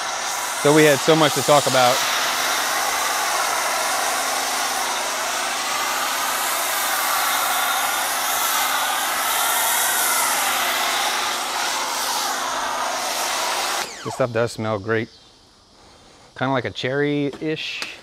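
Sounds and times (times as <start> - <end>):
pressure washer spray hissing: 0.0 - 14.3.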